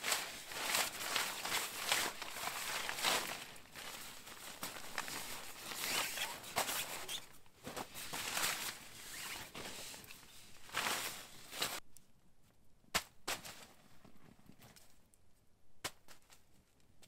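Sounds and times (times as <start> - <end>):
nylon tent fabric rustling: 0.0 - 11.8.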